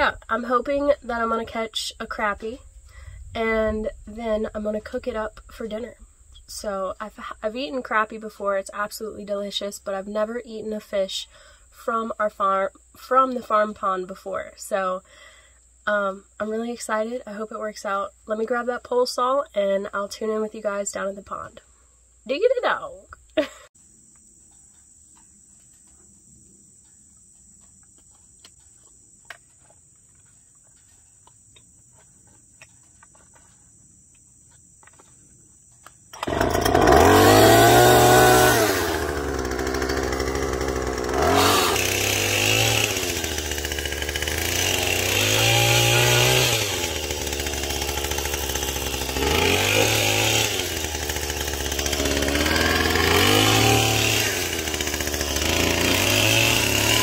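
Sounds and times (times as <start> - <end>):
pole saw engine revving: 36.2 - 57.0.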